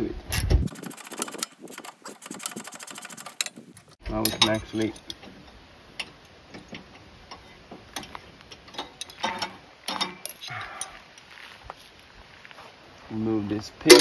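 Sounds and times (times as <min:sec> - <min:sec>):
wrench clinking on metal nuts: 0:04.1 - 0:06.7, 0:08.0 - 0:10.9.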